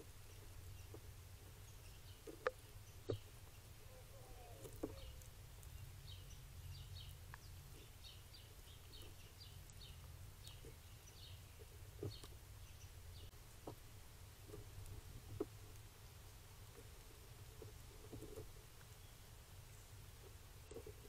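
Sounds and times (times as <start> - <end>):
faint low hum: 0.0 - 21.0
small songbirds chirping: 0.0 - 21.0.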